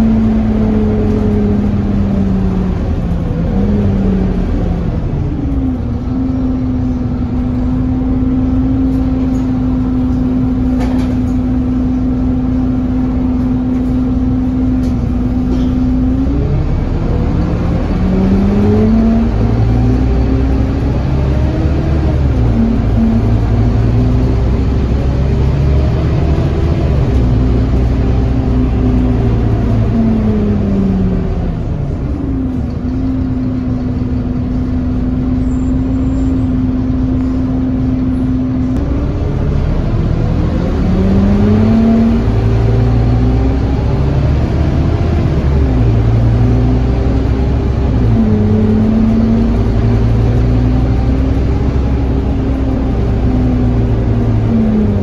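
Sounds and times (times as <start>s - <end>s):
bus engine and gearbox whining: 0.0s - 55.0s.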